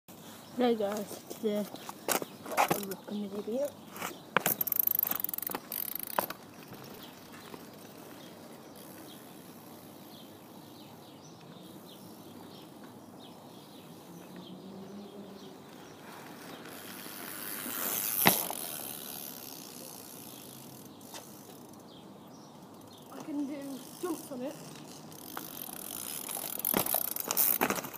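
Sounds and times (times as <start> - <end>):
bike rolling and ticking: 0.8 - 27.9
bike clattering knocks: 18.0 - 18.8, 25.3 - 27.9.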